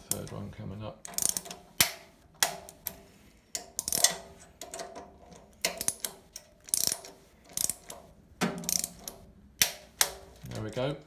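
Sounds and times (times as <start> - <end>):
ratcheting torque wrench clicking: 1.0 - 3.0, 3.6 - 10.2.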